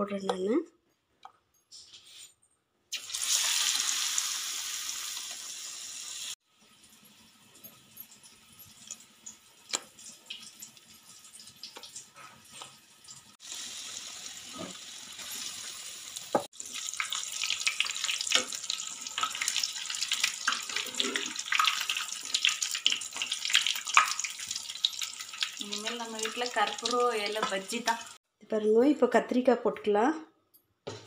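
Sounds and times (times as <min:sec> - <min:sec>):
leaves deep-frying in oil: 0:02.9 - 0:28.2.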